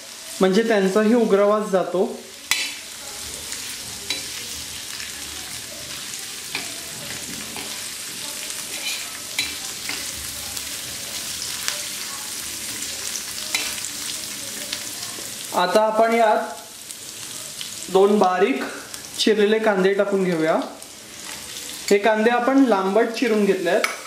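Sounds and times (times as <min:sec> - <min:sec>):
fish sizzling in hot oil: 0:00.0 - 0:24.0
metal spatula scraping pan: 0:08.5 - 0:10.1.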